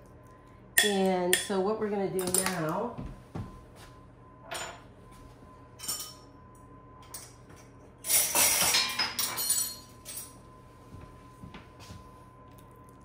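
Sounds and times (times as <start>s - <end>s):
dishes and utensils clinking: 5.8s - 6.3s, 7.0s - 10.4s
glass and metal clatter: 8.1s - 10.4s.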